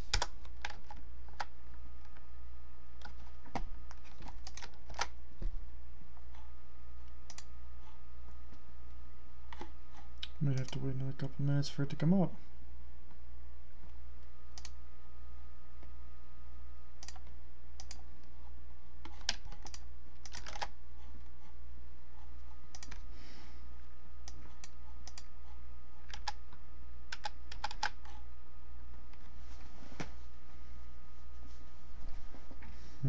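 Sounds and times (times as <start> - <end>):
steady low hum: 0.0 - 33.0
computer keyboard typing: 4.1 - 5.1, 26.0 - 26.4, 27.1 - 28.1.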